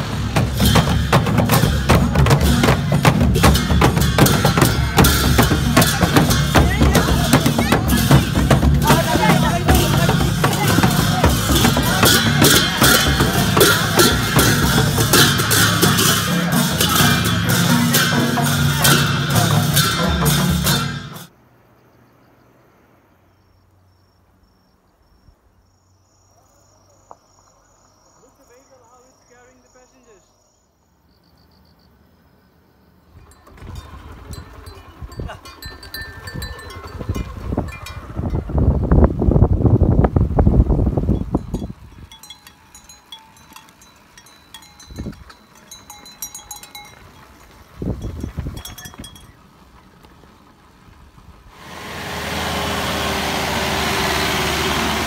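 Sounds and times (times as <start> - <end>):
barrel drums beating: 0.0 - 21.3
insect chirping: 21.3 - 33.9.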